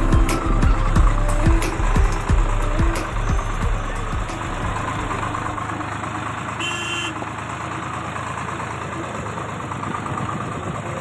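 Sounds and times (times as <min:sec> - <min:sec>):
tractor diesel engine: 0:00.0 - 0:11.0.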